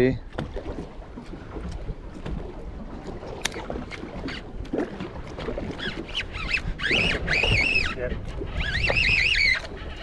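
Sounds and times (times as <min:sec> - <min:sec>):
water around a boat: 0:00.0 - 0:10.0
wind: 0:00.0 - 0:10.0
high wavering calls: 0:05.8 - 0:08.0.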